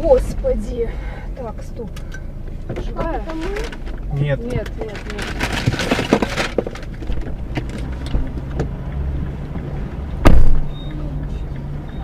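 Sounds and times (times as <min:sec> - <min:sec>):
car engine idling: 0:00.0 - 0:12.0
loud short thump: 0:10.2 - 0:10.7.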